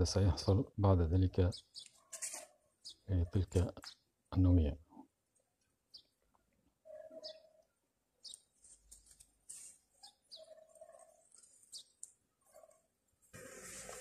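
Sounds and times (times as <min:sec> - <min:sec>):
faint bird chirps: 0:06.8 - 0:08.5, 0:09.9 - 0:12.9.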